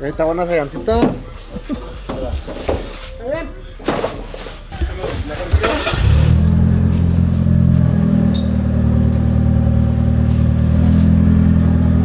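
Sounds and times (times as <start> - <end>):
vehicle engine idling: 5.6 - 12.0.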